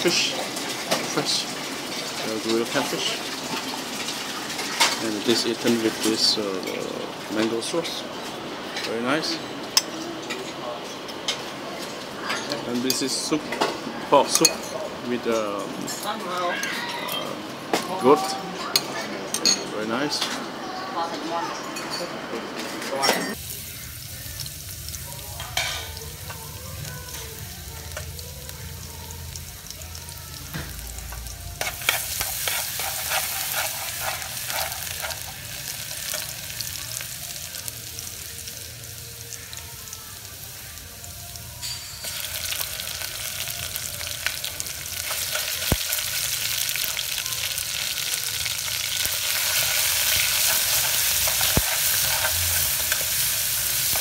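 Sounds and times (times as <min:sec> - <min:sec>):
garlic sizzling in hot oil: 0:00.0 - 0:07.9, 0:23.3 - 0:54.0
spatula stirring meat in pot: 0:31.6 - 0:35.5.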